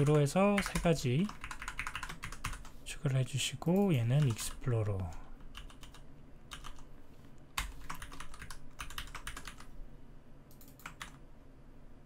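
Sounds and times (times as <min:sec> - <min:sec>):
typing on computer keyboard: 0:00.0 - 0:02.7, 0:05.5 - 0:06.8, 0:07.6 - 0:09.7, 0:10.5 - 0:11.2.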